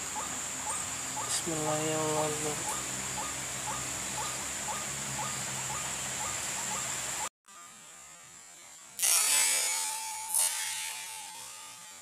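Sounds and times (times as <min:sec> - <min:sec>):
bird call notes: 0:00.0 - 0:07.3
steady high-pitched whine: 0:00.0 - 0:12.0.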